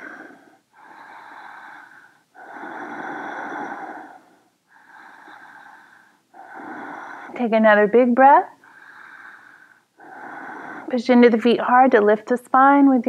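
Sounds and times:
woman breathing deeply: 0:00.0 - 0:07.4, 0:08.6 - 0:11.0.

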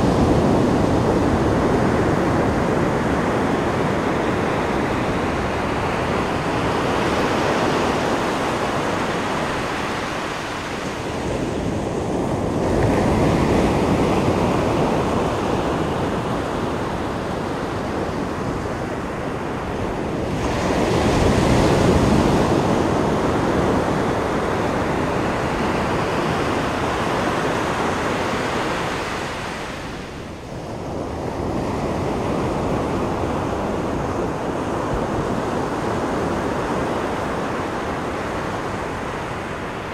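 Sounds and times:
surf breaking on a beach: 0:00.0 - 0:39.9.

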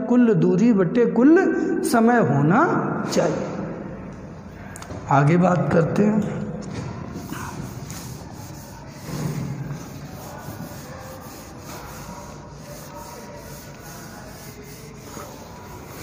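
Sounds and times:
eraser rubbing on whiteboard: 0:07.0 - 0:16.0.

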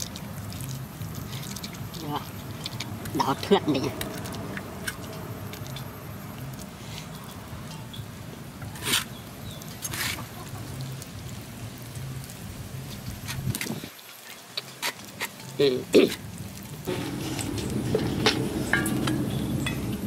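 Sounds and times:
squishing of stuffing packed by hand: 0:00.0 - 0:07.4.

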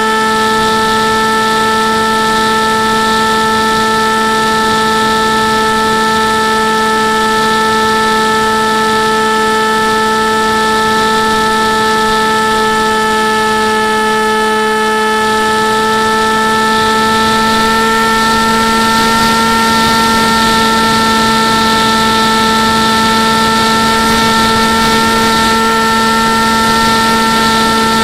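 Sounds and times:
model airplane motor whine: 0:00.0 - 0:28.0
wind noise: 0:15.3 - 0:28.0.

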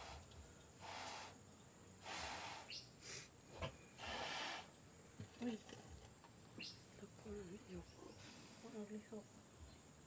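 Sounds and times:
person blowing breathy puffs: 0:00.0 - 0:01.4, 0:02.0 - 0:03.3.

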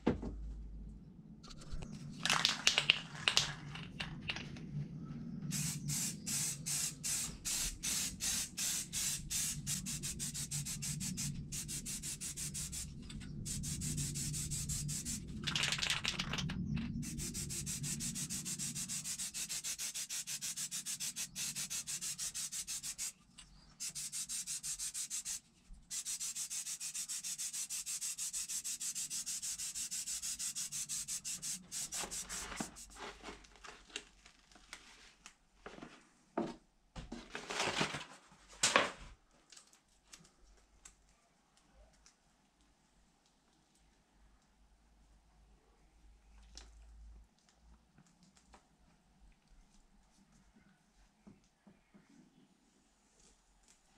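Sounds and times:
spray paint can hissing: 0:05.5 - 0:23.2, 0:23.8 - 0:33.0.

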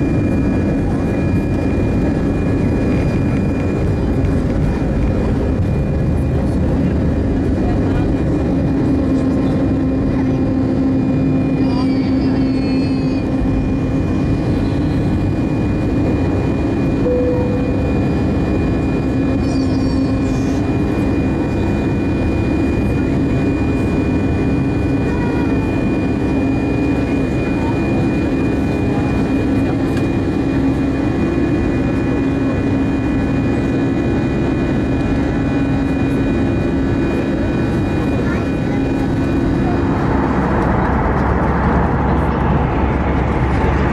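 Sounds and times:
high engine whine: 0:00.0 - 0:43.9
jet engine roar in cabin: 0:00.0 - 0:43.9.

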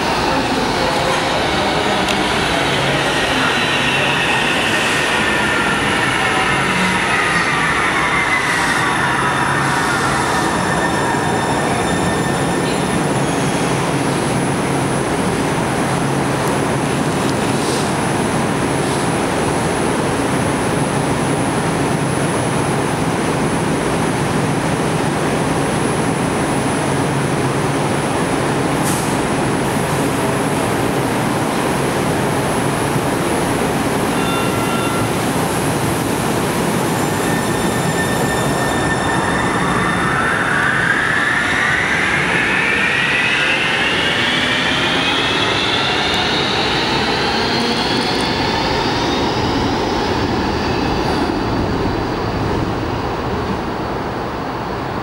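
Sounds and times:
train humming: 0:00.0 - 0:18.7
train motor whine rising: 0:37.1 - 0:51.0.

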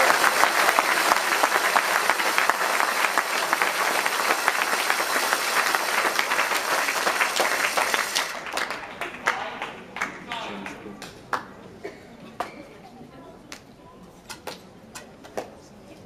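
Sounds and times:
audience applauding: 0:00.0 - 0:11.4.

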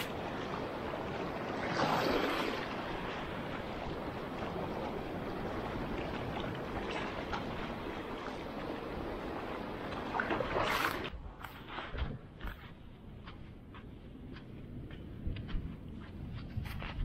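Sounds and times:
wavelets lapping on sandy shore: 0:00.0 - 0:13.4.

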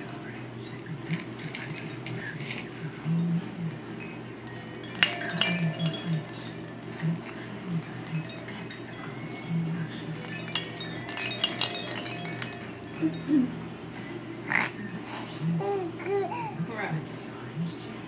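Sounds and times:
hanging toys jingling and clinking: 0:00.0 - 0:13.6.

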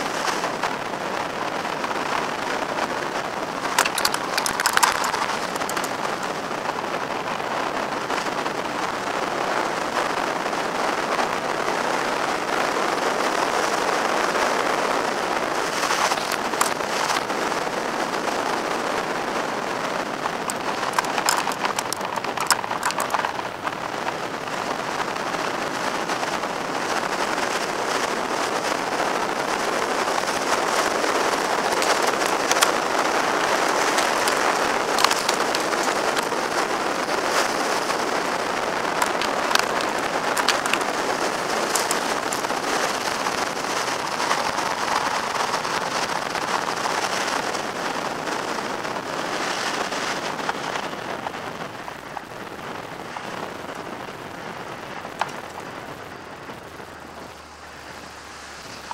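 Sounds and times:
road noise: 0:02.2 - 0:08.3, 0:13.7 - 0:58.9
sharp ticks: 0:03.8 - 0:06.3, 0:20.5 - 0:23.6, 0:31.7 - 0:36.6, 0:38.9 - 0:45.6.

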